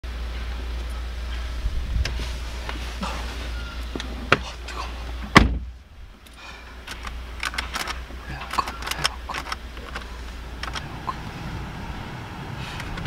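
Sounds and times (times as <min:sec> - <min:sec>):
outside noise: 0:00.0 - 0:13.0
car door shutting with thud: 0:05.2 - 0:05.7
small clicks and rattles: 0:06.2 - 0:10.9.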